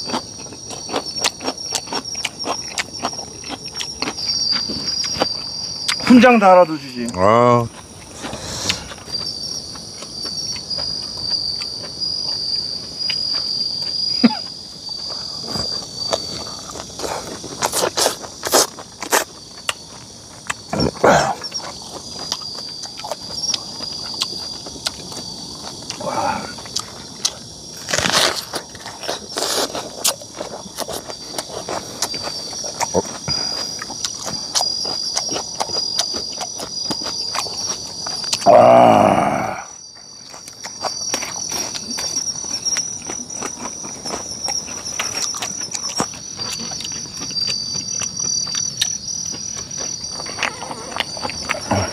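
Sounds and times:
faint eating clicks: 0.0 - 6.0, 28.4 - 38.5
crunching from eating: 0.0 - 51.9
insects trilling: 0.0 - 51.9
onion being bitten: 17.0 - 19.8, 26.7 - 32.1.

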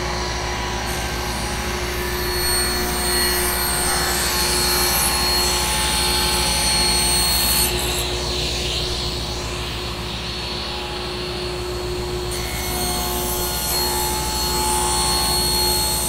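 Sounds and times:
table saw cutting wood: 0.0 - 16.0
table saw motor hum: 0.0 - 16.0.

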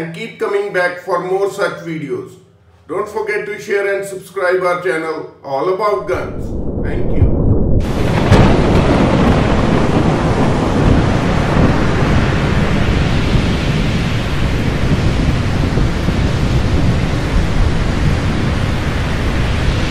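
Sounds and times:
deep thunder rumble: 6.0 - 19.9
rain hiss: 7.8 - 19.9.

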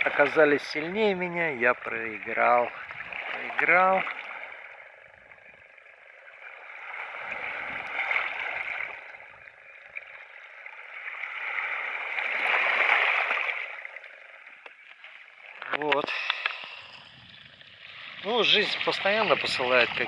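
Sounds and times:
water washing over stones: 0.0 - 4.2, 17.9 - 20.0.

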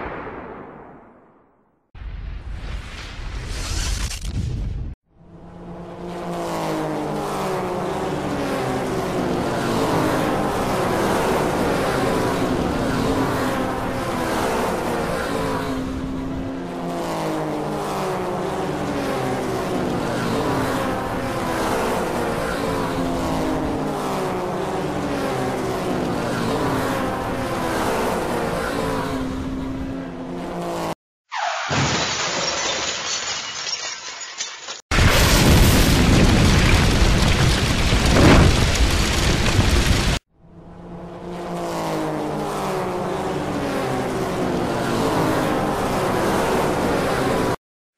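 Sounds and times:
crash: 0.0 - 4.8, 31.4 - 40.2.

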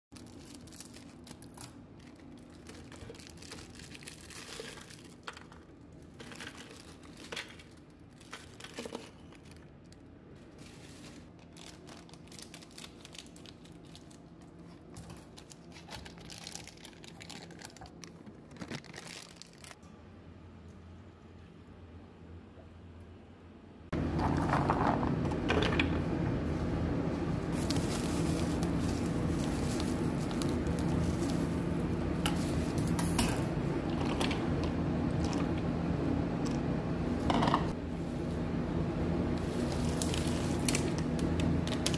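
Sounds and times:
plastic wrappers rustling and tearing: 0.2 - 19.8, 27.5 - 33.4, 39.4 - 41.9.

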